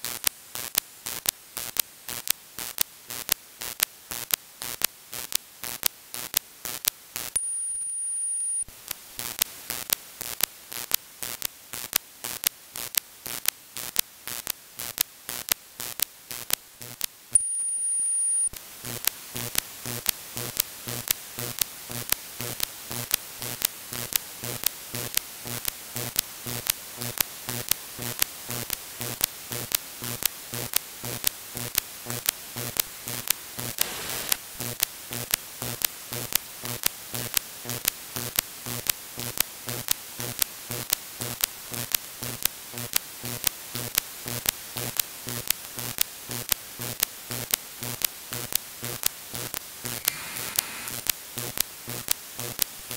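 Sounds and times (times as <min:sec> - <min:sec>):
radio static hiss: 0:17.3 - 0:18.6, 0:33.6 - 0:34.8, 0:49.8 - 0:52.5
sharp radio clicks: 0:49.9 - 0:51.1.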